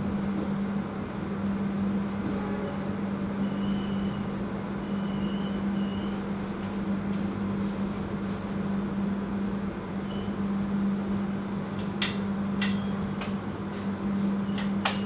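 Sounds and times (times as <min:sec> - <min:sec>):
train carriage hum: 0:00.0 - 0:15.0.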